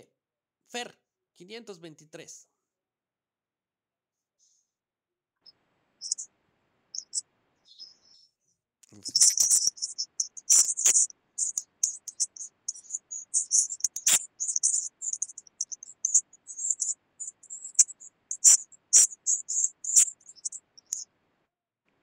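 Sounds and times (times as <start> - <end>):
rapid high-pitched chirping: 6.0 - 6.3, 7.0 - 21.1
sharp clicks: 8.8 - 21.0.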